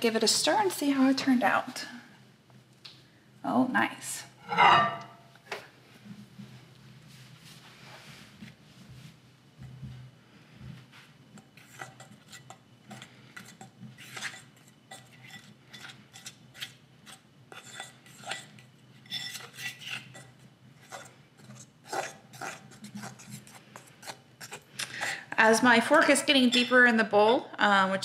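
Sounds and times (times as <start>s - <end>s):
fork scraping and clinking on bowl: 4.4s - 5.2s, 11.6s - 20.3s.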